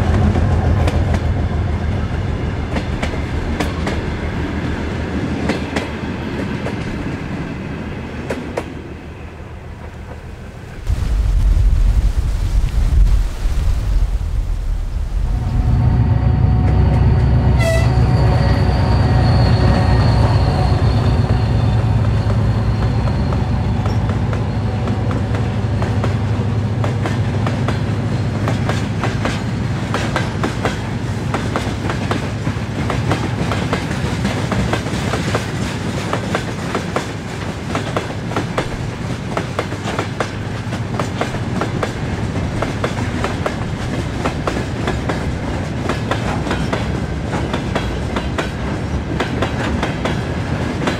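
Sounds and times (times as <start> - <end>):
diesel locomotive engine drone: 0.0 - 11.1, 14.6 - 50.9
train wheels clacking over rail joints: 26.8 - 50.9.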